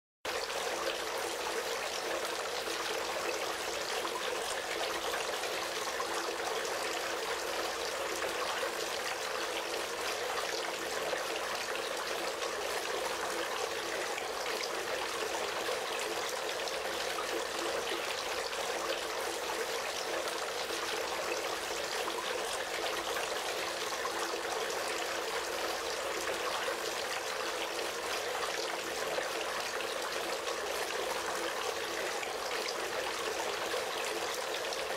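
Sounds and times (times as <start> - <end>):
fountain water trickling: 0.3 - 34.9.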